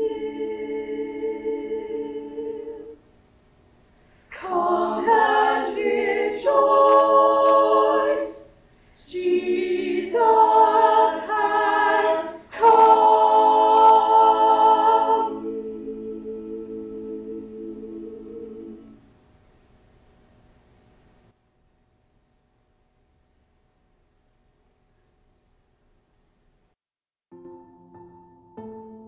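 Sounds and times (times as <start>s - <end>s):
girls' choir singing a cappella: 0.0s - 3.0s, 4.3s - 19.0s.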